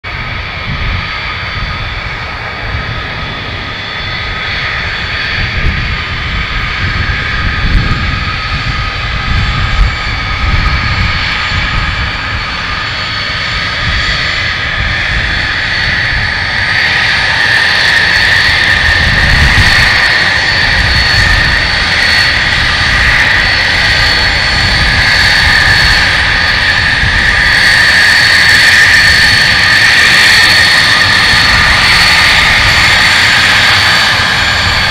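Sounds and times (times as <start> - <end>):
jet engine whine: 0.0 - 34.9
low engine rumble: 0.2 - 27.4.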